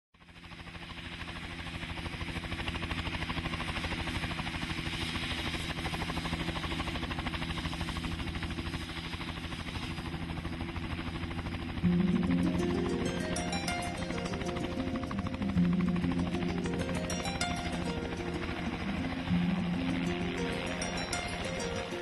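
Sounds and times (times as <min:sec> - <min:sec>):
helicopter rotor chopping: 0:00.3 - 0:22.0
music: 0:11.8 - 0:22.0.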